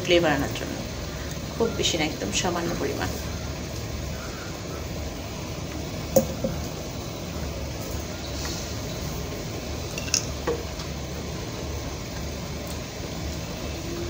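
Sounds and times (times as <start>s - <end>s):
steady low hum: 0.0s - 14.0s
utensil knocking against pan: 6.2s - 6.7s.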